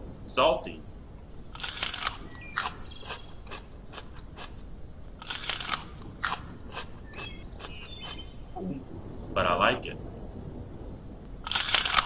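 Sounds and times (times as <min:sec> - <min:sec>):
cartoon crunchy chewing: 0:01.6 - 0:04.6, 0:05.2 - 0:08.4.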